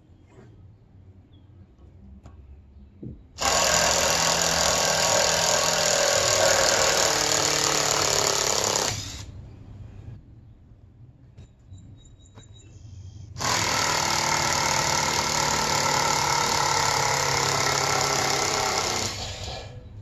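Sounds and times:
power driver driving screw into wood: 3.4s - 9.3s, 13.4s - 19.7s.

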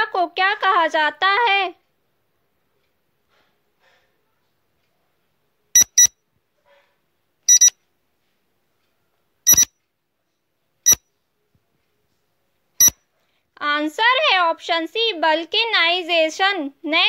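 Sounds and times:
high electronic timer beeps: 5.8s - 6.2s, 7.5s - 7.8s, 9.5s - 9.7s, 10.8s - 11.0s.

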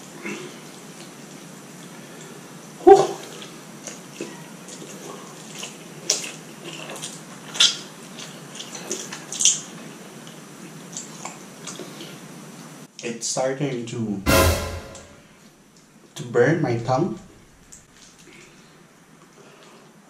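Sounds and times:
loud short bump: 14.3s - 15.2s.

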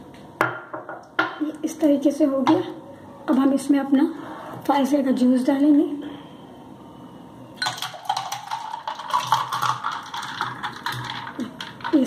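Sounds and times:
juice pouring into a glass: 7.6s - 12.0s.

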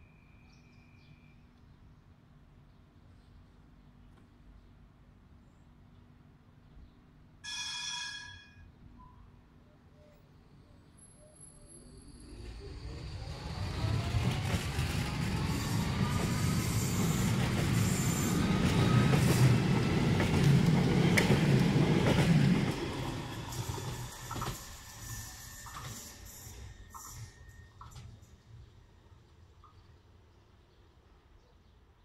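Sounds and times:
tram motors whining: 11.0s - 28.6s
wheels rumbling on rail: 11.6s - 29.0s.

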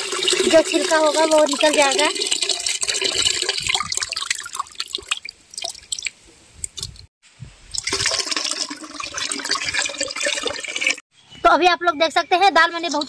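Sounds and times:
water pouring into steel pot: 0.0s - 6.1s, 7.7s - 11.0s.

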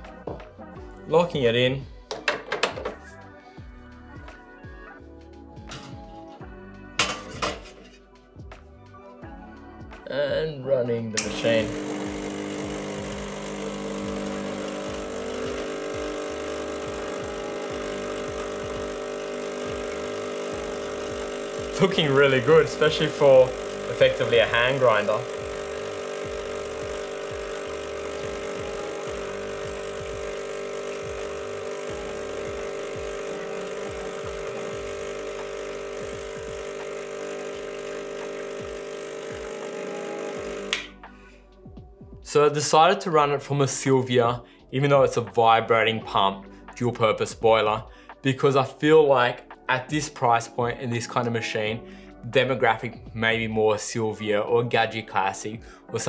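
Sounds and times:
espresso machine pump humming: 11.2s - 41.0s.

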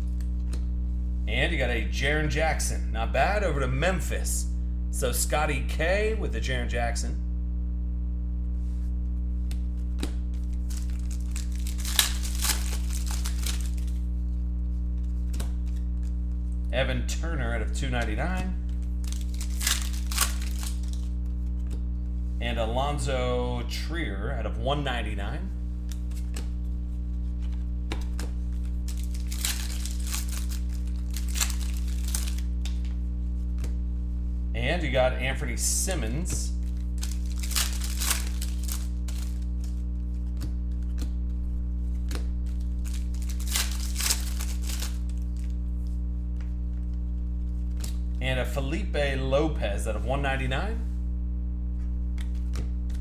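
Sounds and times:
steady electrical hum: 0.0s - 53.0s
foil wrapper crinkling and tearing: 10.4s - 16.2s, 18.8s - 21.4s, 28.6s - 32.9s, 36.6s - 40.8s, 42.4s - 45.6s.

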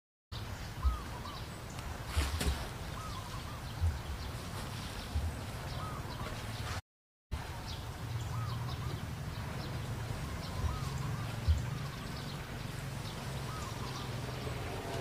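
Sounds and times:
low steady rumble: 7.4s - 15.0s.

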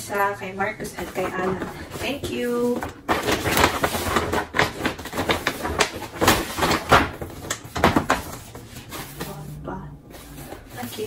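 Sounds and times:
wrapping paper tearing and crinkling: 1.2s - 9.4s.

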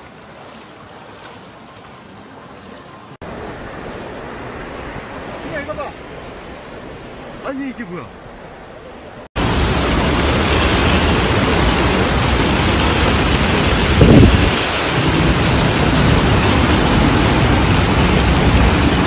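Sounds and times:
heavy downpour: 0.0s - 8.1s, 9.4s - 19.0s
rushing floodwater: 0.0s - 19.0s.

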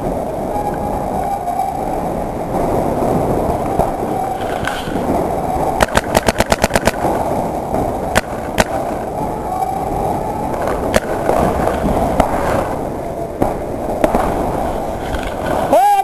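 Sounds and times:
low background rumble: 0.0s - 16.0s
paintball marker shots: 5.8s - 7.0s, 8.2s - 8.8s.

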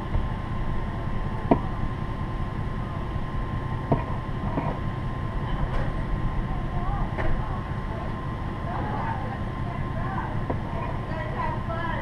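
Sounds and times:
thin steady hum: 0.0s - 12.0s
vehicle engine idling: 0.0s - 12.0s.

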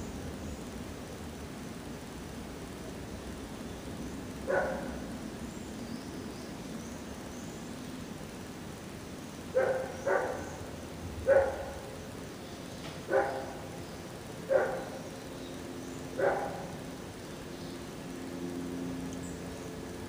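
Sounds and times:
dog barking: 4.5s - 5.0s, 9.6s - 10.6s, 11.2s - 11.9s, 13.1s - 13.6s, 14.5s - 15.0s, 16.2s - 16.7s.

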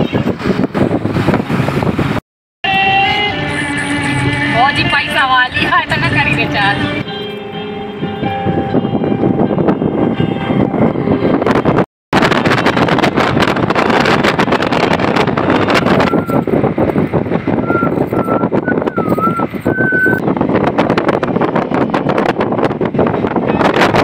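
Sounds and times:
wind buffeting microphone: 0.0s - 2.2s, 3.9s - 24.0s
car road and engine noise: 0.0s - 24.0s
faint wavering whistle tone: 16.0s - 16.5s, 17.6s - 20.2s.

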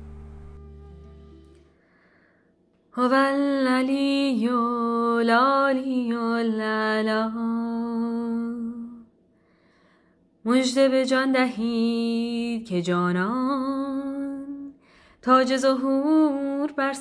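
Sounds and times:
instrumental music: 0.0s - 2.2s
woman chanting: 3.0s - 9.0s, 10.5s - 17.0s.

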